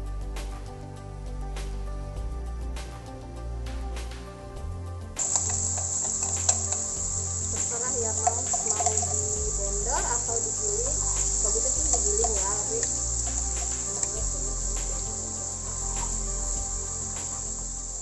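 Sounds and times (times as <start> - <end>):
low hum: 0.0 - 18.0
cricket trill: 5.2 - 18.0.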